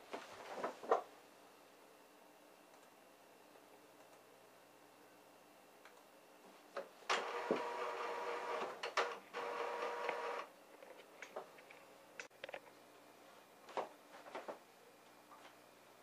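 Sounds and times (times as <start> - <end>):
printer carriage motor whirring: 7.1 - 10.5.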